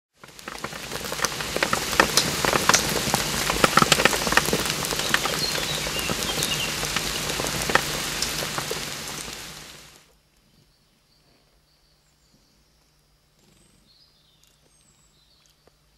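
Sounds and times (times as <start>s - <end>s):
water pattering and splashing: 0.2s - 10.0s.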